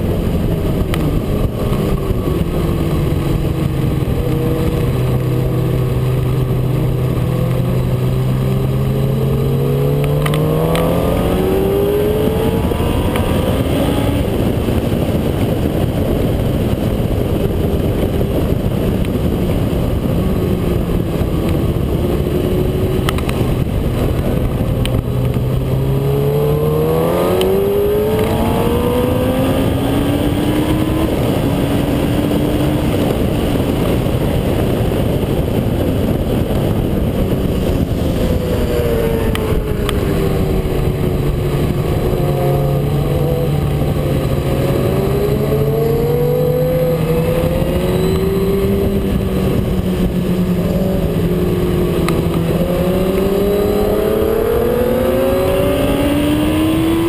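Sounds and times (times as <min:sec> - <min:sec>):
motorcycle engine: 0:00.0 - 0:57.0
wind rush on microphone: 0:00.0 - 0:57.0.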